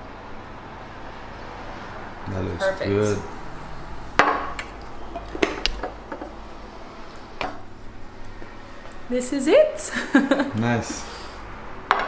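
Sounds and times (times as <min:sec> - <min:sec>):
tableware knocking and clinking: 0:04.2 - 0:06.4.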